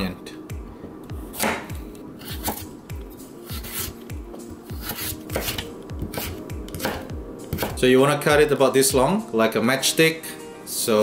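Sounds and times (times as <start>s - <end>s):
background music with steady beat: 0.0s - 11.0s
knife slicing carrot: 1.3s - 2.7s, 3.4s - 4.0s, 4.6s - 7.8s.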